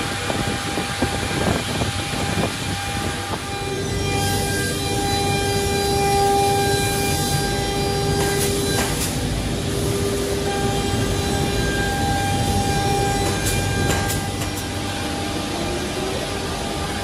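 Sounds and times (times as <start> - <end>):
boring machine humming with whine: 0.0 - 17.0.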